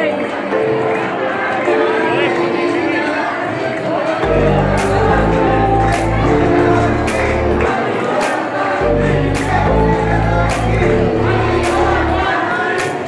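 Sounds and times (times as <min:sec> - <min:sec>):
crowd noise: 0:00.0 - 0:13.0
devotional song with singing: 0:00.0 - 0:13.0
deep bass line: 0:04.2 - 0:07.7, 0:08.8 - 0:12.2.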